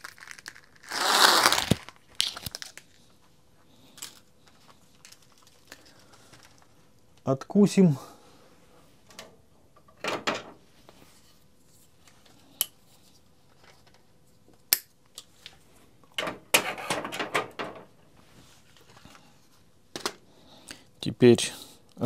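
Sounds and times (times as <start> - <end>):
knocks and rustles of tools: 9.0 - 10.6, 16.1 - 17.9.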